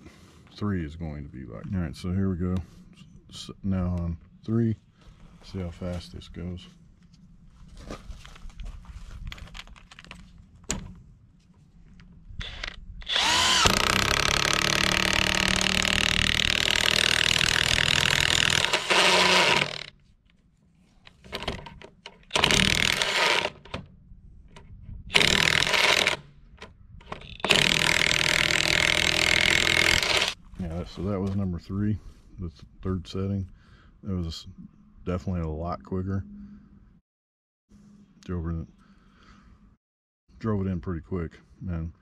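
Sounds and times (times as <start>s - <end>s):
impact wrench hammering bolt into wood: 22.3s - 23.8s, 25.1s - 26.2s, 27.1s - 30.3s.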